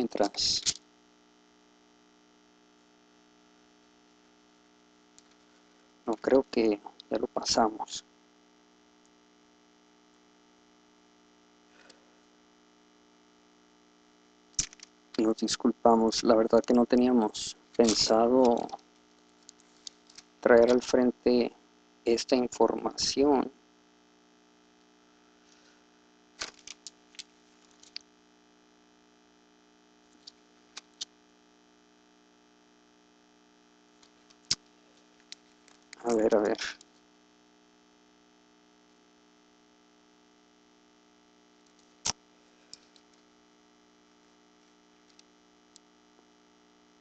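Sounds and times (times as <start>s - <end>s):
low electrical hum: 0.0s - 47.0s
sharp clicks: 14.6s - 14.9s.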